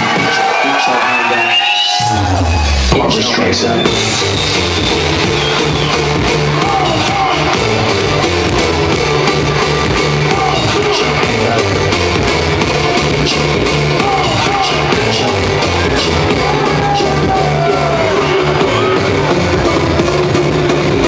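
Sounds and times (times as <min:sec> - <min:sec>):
loud music with steady beat: 0:00.0 - 0:21.0.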